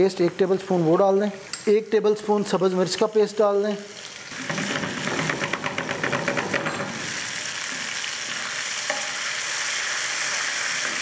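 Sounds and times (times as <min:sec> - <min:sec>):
onion sizzling in oil: 0:03.0 - 0:11.0.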